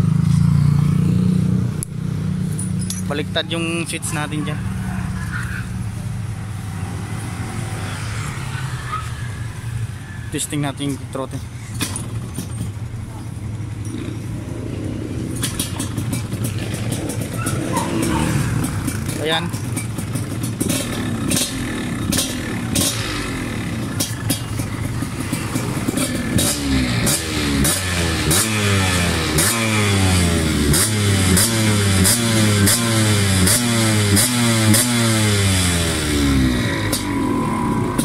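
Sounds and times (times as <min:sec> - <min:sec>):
dirt bike engine revving with pops: 0:15.3 - 0:38.0.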